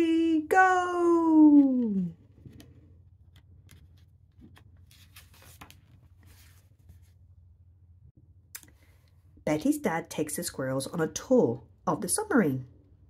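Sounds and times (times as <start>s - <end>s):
book page turning: 1.8s - 7.2s.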